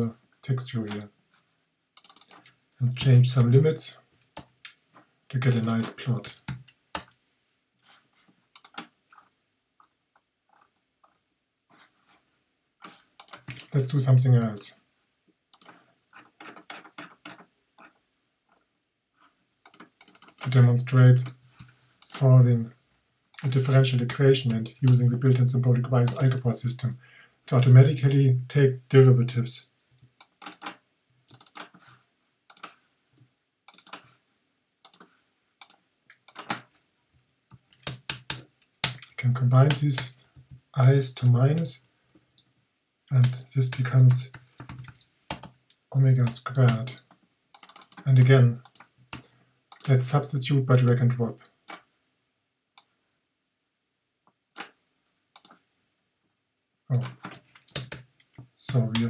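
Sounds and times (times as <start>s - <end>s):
computer keyboard typing: 2.0s - 3.6s, 8.6s - 8.9s, 19.7s - 20.5s, 26.0s - 26.5s, 29.9s - 31.7s, 32.5s - 32.7s, 33.7s - 34.1s, 35.6s - 36.8s, 37.5s - 40.6s, 43.2s - 45.6s, 47.6s - 49.9s, 56.9s - 58.1s.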